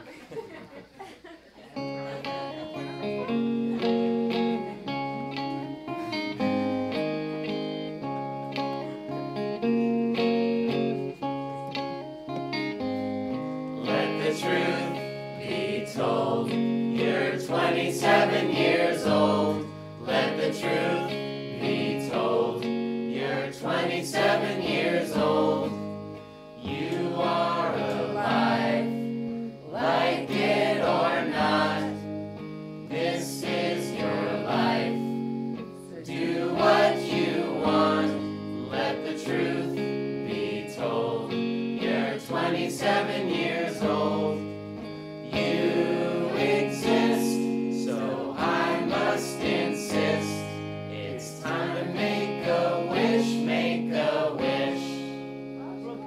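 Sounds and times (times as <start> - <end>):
guitar accompaniment: 0.0 - 56.0
group of voices singing: 13.8 - 35.4, 36.0 - 55.4.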